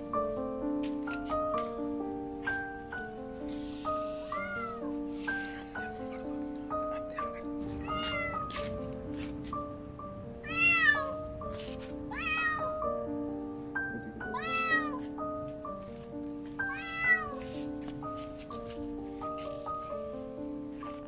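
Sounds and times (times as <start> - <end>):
background music with held notes: 0.0 - 21.0
kitten meowing: 4.2 - 4.8, 6.8 - 8.7, 10.4 - 11.2, 12.1 - 12.8, 14.0 - 15.0, 16.6 - 17.6.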